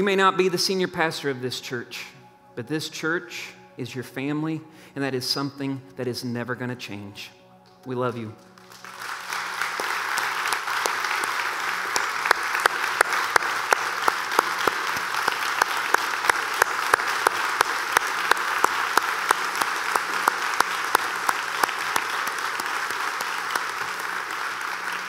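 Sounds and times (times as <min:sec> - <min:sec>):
close loud hand claps: 0:08.4 - 0:25.0
crowd applauding: 0:08.4 - 0:25.0.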